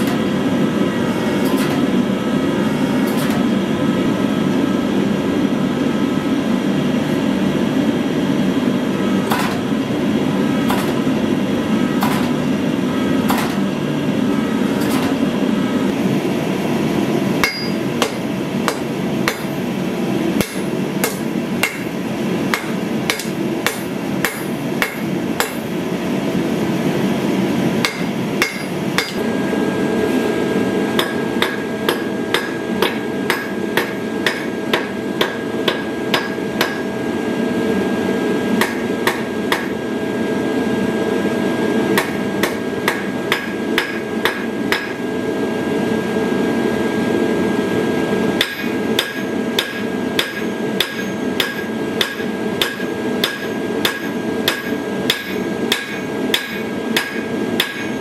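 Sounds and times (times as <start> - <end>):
hammer striking steel on anvil: 9.3 - 9.7, 10.7 - 11.0, 12.0 - 12.4, 13.3 - 13.6, 17.4 - 19.6, 20.4 - 25.7, 27.8 - 29.2, 31.0 - 36.9, 38.6 - 39.8, 42.0 - 45.0, 48.4 - 58.0
anvil ringing: 17.4 - 19.6.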